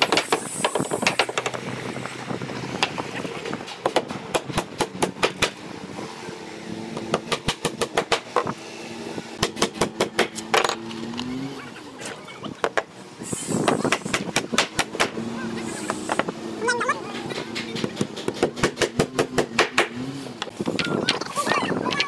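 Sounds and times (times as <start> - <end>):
motor running steadily: 0.8 - 21.2
hammer striking nails: 3.8 - 5.6, 7.0 - 8.5, 9.4 - 10.7, 17.4 - 20.0.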